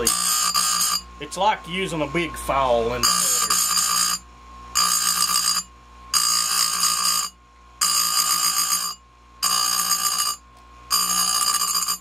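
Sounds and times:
grinder motor whine: 0:00.0 - 0:01.3, 0:01.9 - 0:12.0
grinding stone ringing screech: 0:00.0 - 0:12.0.

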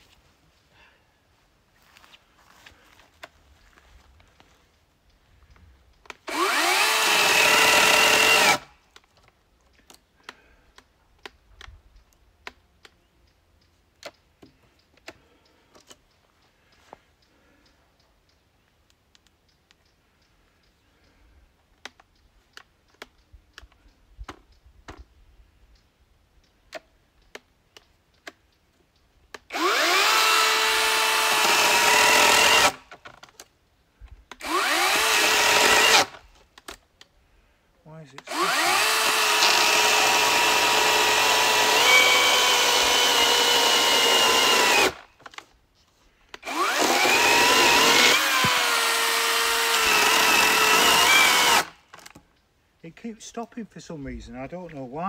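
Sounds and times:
electric chainsaw cutting log: 0:06.2 - 0:08.7, 0:29.4 - 0:33.0, 0:34.3 - 0:36.2, 0:38.2 - 0:45.1, 0:46.4 - 0:51.8
faint clicks: 0:08.8 - 0:25.1.

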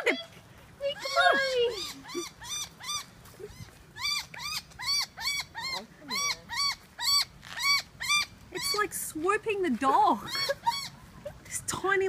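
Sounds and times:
small dog yapping: 0:01.0 - 0:08.8.

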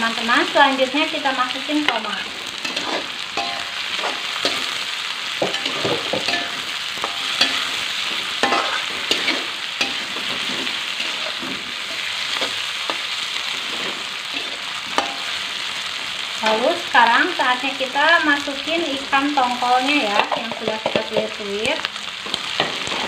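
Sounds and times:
vegetables sizzling in hot oil: 0:00.0 - 0:23.0
metal spatula scraping a wok: 0:01.8 - 0:15.7, 0:22.4 - 0:23.0.

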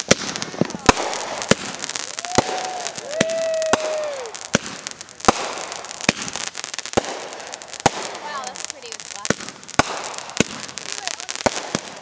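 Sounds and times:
firework bangs: 0:00.0 - 0:12.0
firework crackling: 0:00.0 - 0:12.0
firework whistling: 0:00.0 - 0:12.0.

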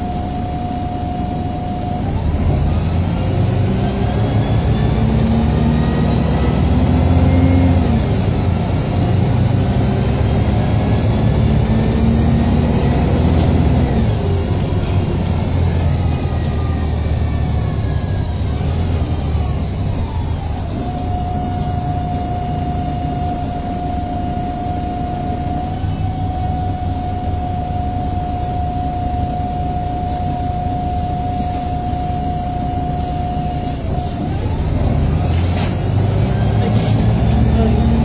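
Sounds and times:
bus diesel engine rumble: 0:00.0 - 0:38.0
drivetrain whine: 0:00.0 - 0:38.0
faint high squeal: 0:12.3 - 0:34.8, 0:35.5 - 0:36.6.

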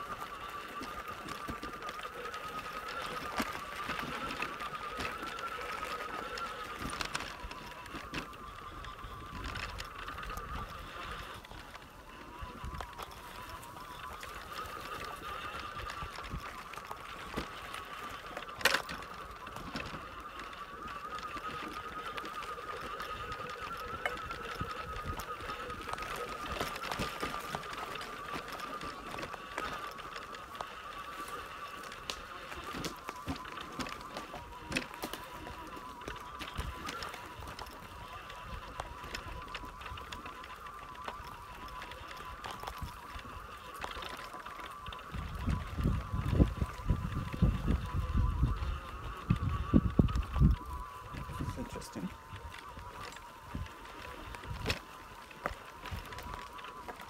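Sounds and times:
trike motor whine: 0:00.0 - 0:57.0.

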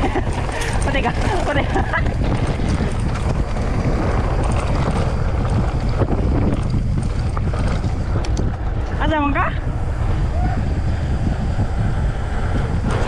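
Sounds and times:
light rattles: 0:00.0 - 0:09.3
tyres rumbling on dirt: 0:00.0 - 0:13.0
wind buffeting microphone: 0:00.0 - 0:13.0.

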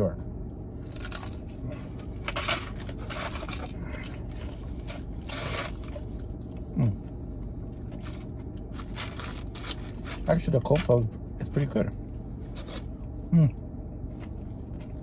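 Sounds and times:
car air conditioning hum: 0:00.0 - 0:15.0
person humming: 0:06.7 - 0:07.0, 0:13.3 - 0:13.6
person chewing food: 0:12.4 - 0:15.0.

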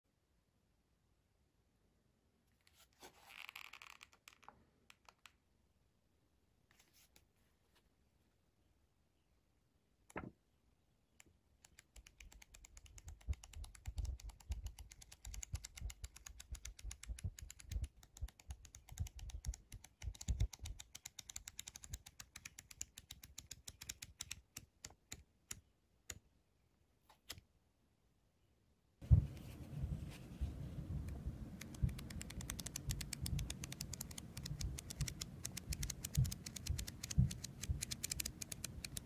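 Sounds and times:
flipbook pages flicking: 0:31.1 - 0:39.0.

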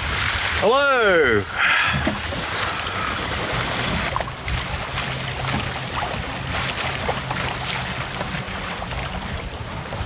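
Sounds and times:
wind noise: 0:00.0 - 0:00.6
water slapping against hull: 0:00.0 - 0:00.7, 0:01.5 - 0:10.0.

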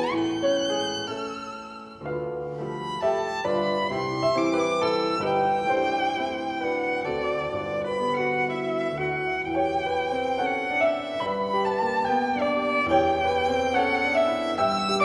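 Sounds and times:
piano chords: 0:00.0 - 0:15.0
violin with vibrato: 0:00.0 - 0:15.0.

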